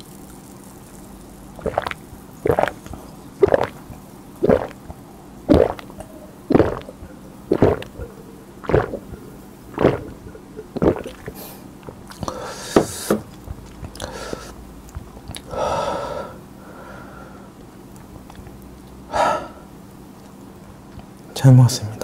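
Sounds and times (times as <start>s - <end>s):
person gulping soda: 1.5s - 15.5s
person breathing out hard: 15.5s - 17.5s, 19.1s - 19.6s.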